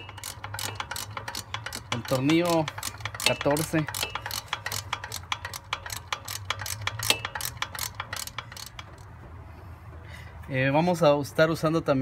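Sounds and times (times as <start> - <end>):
socket ratchet clicking: 0.0 - 9.2.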